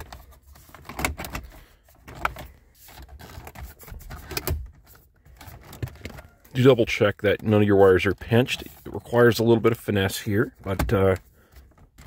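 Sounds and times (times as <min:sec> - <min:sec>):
plastic trim clicking and creaking: 0:00.0 - 0:06.6.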